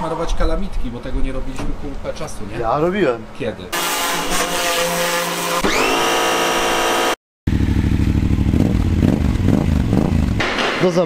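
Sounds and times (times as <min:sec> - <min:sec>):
pressure washer motor whine: 0:03.8 - 0:08.0
rapidly pulsing engine sound: 0:06.9 - 0:10.4.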